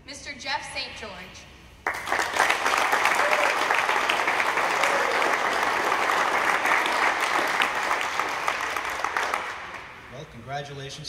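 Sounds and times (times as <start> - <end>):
crowd applauding: 1.8 - 10.1.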